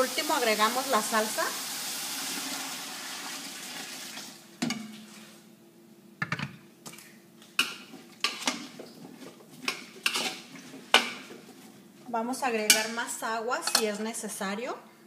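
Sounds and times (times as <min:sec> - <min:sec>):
liquid pouring into boiling pot: 0:00.1 - 0:05.3.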